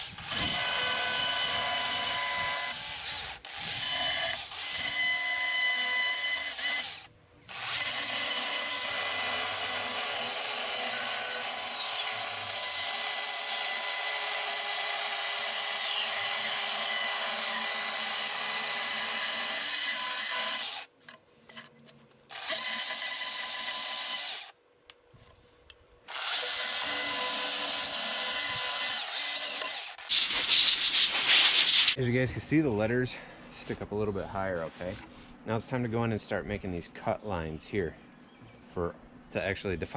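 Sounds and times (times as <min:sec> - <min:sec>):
chainsaw cutting wood: 0:00.0 - 0:20.9, 0:22.3 - 0:24.6, 0:26.1 - 0:32.0.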